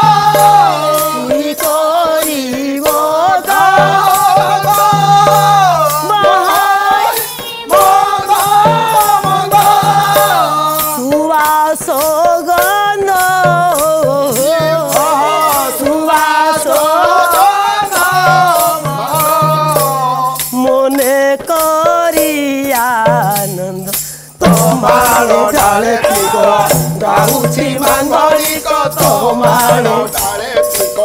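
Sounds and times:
woman singing: 0:00.0 - 0:23.7
rattling percussion: 0:00.0 - 0:31.0.

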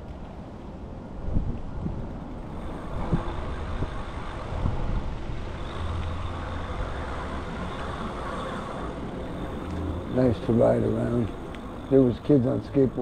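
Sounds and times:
road vehicle rumble and hiss: 0:00.0 - 0:13.0.

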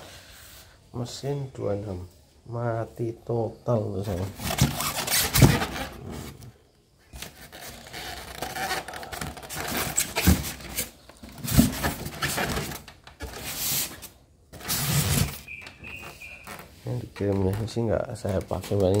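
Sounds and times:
cloth and paper rustling: 0:07.1 - 0:19.0.

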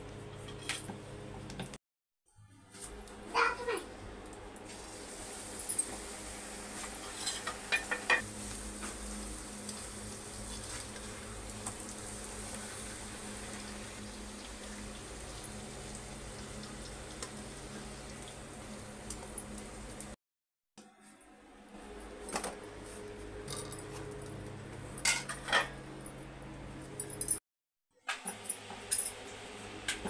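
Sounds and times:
dough sizzling in hot oil: 0:04.7 - 0:20.2
utensils clinking against pan: 0:06.9 - 0:08.2.

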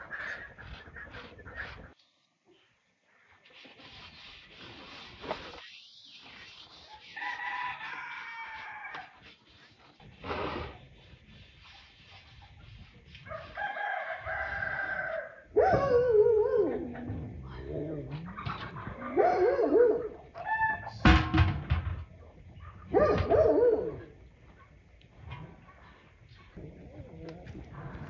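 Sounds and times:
rooster crowing: 0:07.2 - 0:09.1, 0:13.3 - 0:15.4.

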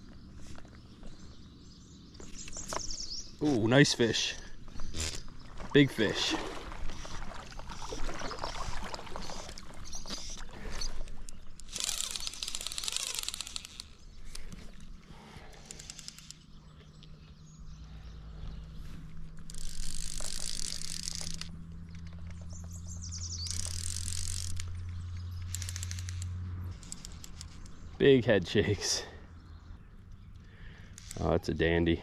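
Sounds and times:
fly reel click drag ratcheting: 0:11.3 - 0:14.4, 0:15.6 - 0:16.4, 0:19.4 - 0:22.3, 0:23.4 - 0:27.8, 0:30.9 - 0:31.3.

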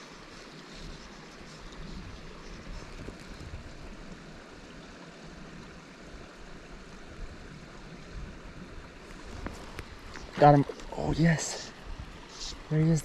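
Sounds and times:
wind buffeting microphone: 0:00.7 - 0:04.4, 0:06.9 - 0:12.7.

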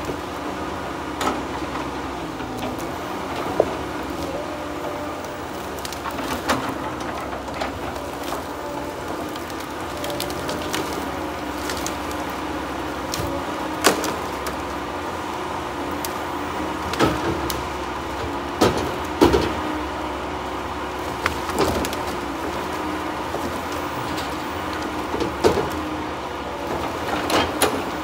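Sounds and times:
diesel engine running: 0:00.0 - 0:28.0
logs knocking together: 0:01.0 - 0:14.8, 0:20.9 - 0:26.0, 0:26.6 - 0:28.0.

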